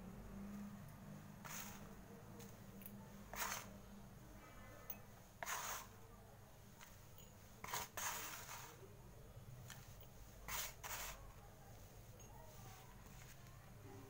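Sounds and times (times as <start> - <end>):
soft wet scrapes and squishes: 7.6 - 8.9, 9.6 - 13.7.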